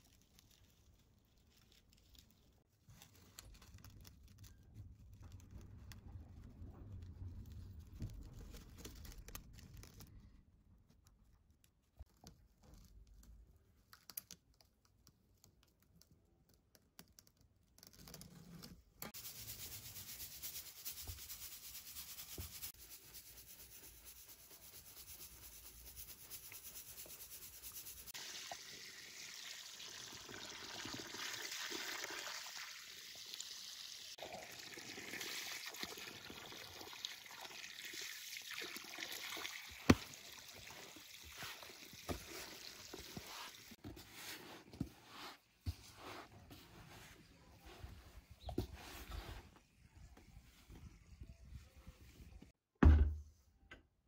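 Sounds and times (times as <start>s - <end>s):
water running into plastic tub: 26.4s - 43.8s
hand mixing wet sand: 38.9s - 49.6s.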